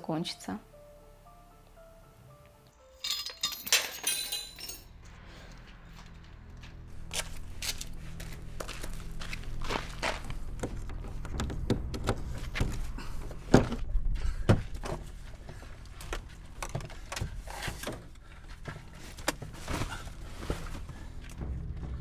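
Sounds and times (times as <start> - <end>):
knocks and thunks: 10.6 - 15.1.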